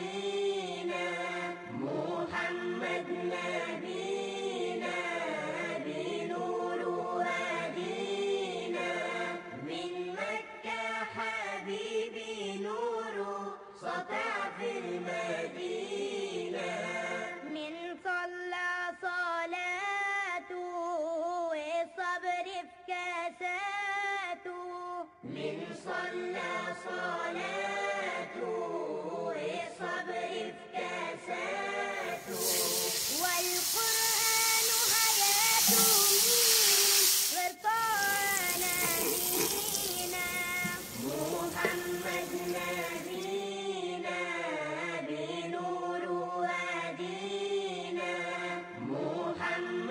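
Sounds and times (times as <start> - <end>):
oil sizzling in a skillet: 32.0 - 43.4.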